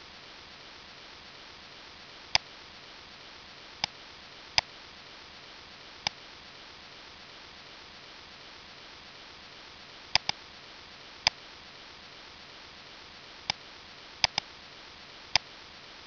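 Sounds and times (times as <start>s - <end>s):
faint steady hiss: 0.0s - 16.0s
computer mouse button clicking: 10.2s - 10.4s, 14.2s - 14.4s.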